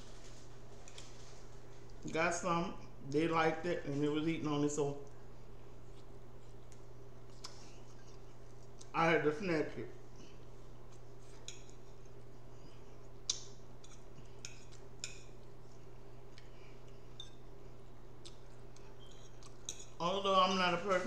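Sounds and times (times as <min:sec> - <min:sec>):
steady low hum: 0:00.0 - 0:21.0
fork clicking and scraping plate: 0:11.3 - 0:12.2, 0:13.3 - 0:15.6, 0:18.2 - 0:20.0.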